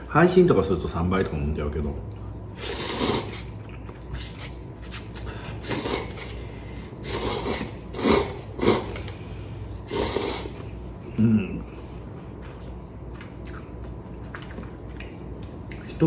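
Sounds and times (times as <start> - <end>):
man slurping noodles: 2.6 - 3.5, 4.1 - 6.4, 7.0 - 9.0, 9.8 - 10.6.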